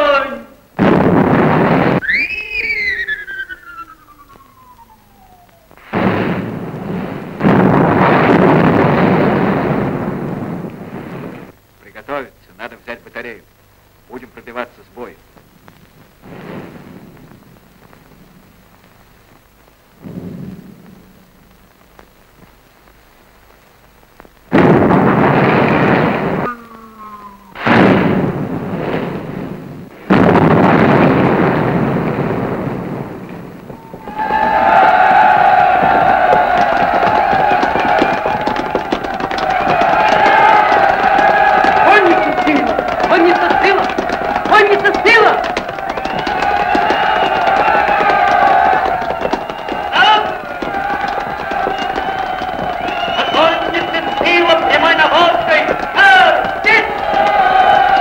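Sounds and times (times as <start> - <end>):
shell explosions: 0.7 - 11.7, 15.2 - 22.6, 24.2 - 58.0
artillery shell whistling: 0.9 - 11.6, 24.6 - 29.4, 30.2 - 58.0.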